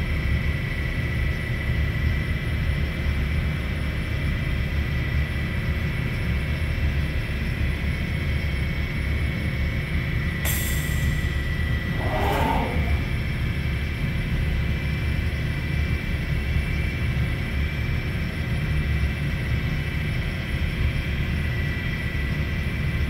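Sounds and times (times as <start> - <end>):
high whine: 10.9 - 13.4
machine low rumble: 11.0 - 13.6.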